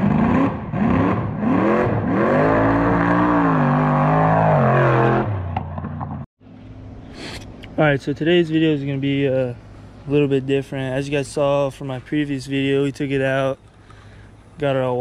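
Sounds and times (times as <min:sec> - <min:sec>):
truck engine revving: 0:00.0 - 0:06.3.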